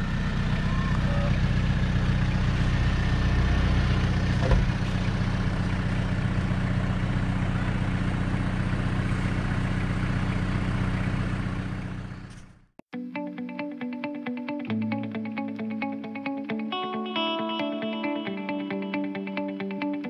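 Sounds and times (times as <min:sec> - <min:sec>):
vehicle engine running: 0:00.0 - 0:12.8.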